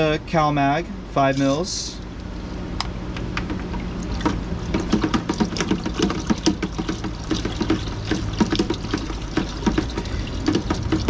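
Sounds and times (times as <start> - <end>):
water splashing in a bucket: 3.4 - 11.0
water running in: 3.5 - 11.0.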